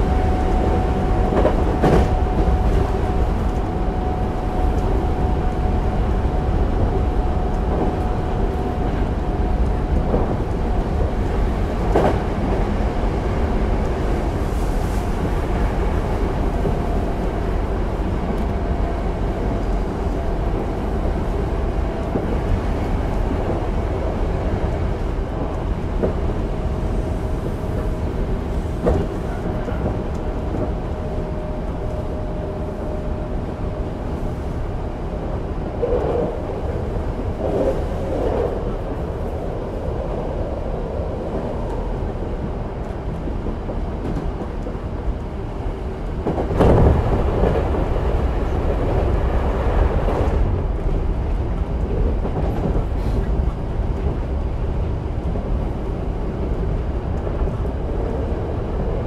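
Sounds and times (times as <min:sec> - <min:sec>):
train wheel and rail rumble: 0:00.0 - 0:59.0.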